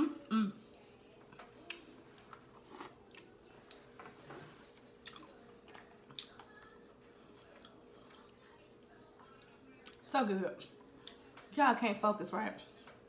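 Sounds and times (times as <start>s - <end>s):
faint steady hum: 0.0s - 13.0s
person chewing and lip-smacking: 5.0s - 6.7s.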